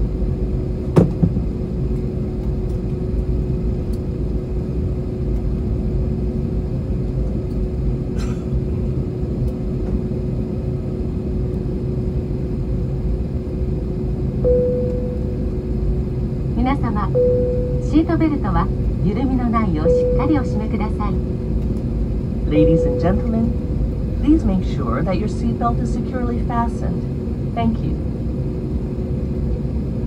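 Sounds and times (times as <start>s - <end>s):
aircraft cabin rumble while taxiing: 0.0s - 30.0s
constant hum: 0.0s - 30.0s
higher steady hum: 0.1s - 30.0s
sharp knock: 1.0s - 1.4s.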